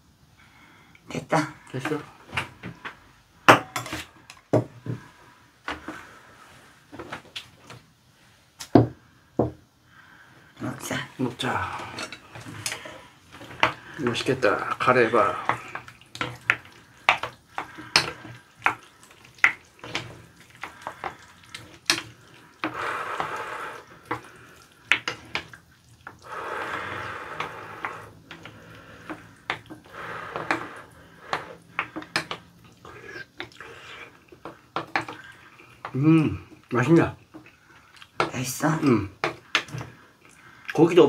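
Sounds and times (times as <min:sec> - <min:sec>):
spoons scraping ceramic bowls: 0:03.6 - 0:04.1, 0:11.7 - 0:25.6
wet eating sounds: 0:11.2 - 0:41.0.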